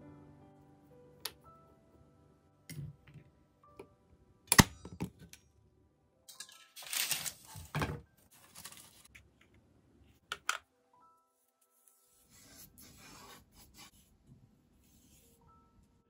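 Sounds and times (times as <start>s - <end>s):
paper rustling: 6.8s - 9.1s.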